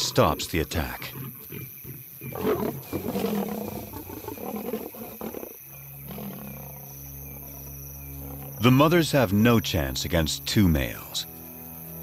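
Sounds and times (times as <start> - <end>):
lions growling and snarling: 0.0 - 9.0.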